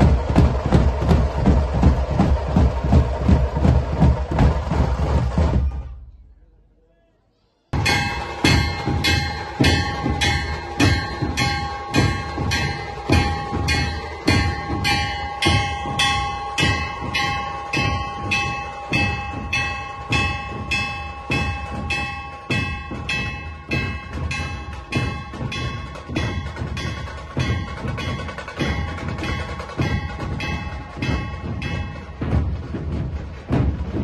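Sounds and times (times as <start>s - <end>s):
barrel drums beaten: 0.0s - 6.0s, 7.8s - 34.0s
metallic clanging: 7.8s - 34.0s.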